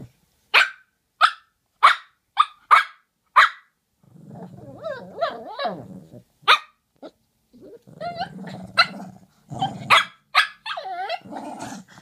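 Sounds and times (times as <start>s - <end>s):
dog growly grumble: 4.1s - 6.2s, 7.6s - 9.9s, 11.0s - 12.0s
dogs barking: 9.9s - 10.8s.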